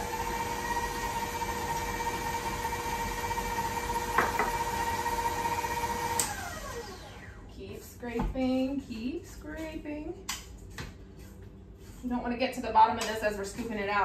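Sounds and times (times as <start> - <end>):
electric stand mixer whining: 0.0 - 7.5.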